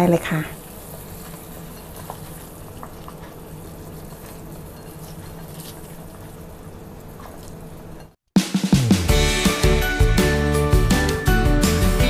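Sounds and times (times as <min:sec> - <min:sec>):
soup bubbling in saucepan: 0:00.6 - 0:07.4.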